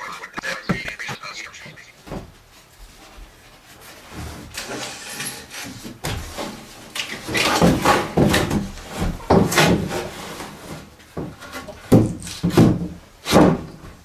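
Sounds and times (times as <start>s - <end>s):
plywood scraping on wooden rafters: 3.0s - 14.0s.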